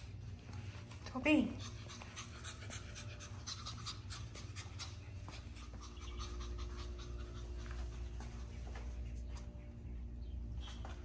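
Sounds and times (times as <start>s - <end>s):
puppy panting: 0.0s - 9.8s
low hum: 0.0s - 11.0s
paws on tile floor: 0.0s - 11.0s.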